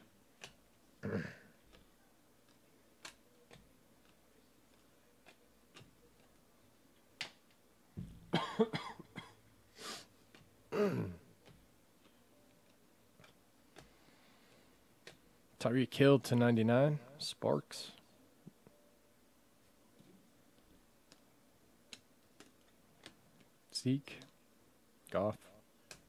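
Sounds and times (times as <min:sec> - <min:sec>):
man coughing and clearing throat: 0:01.0 - 0:01.5, 0:08.3 - 0:09.4, 0:10.7 - 0:11.2.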